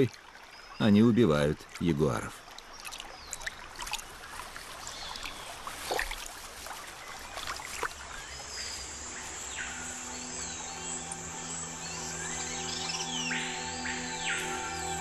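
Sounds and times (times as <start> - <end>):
water splashing and lapping: 1.5 - 10.1
birds chirping: 6.8 - 15.0
soft music with low notes: 8.0 - 15.0.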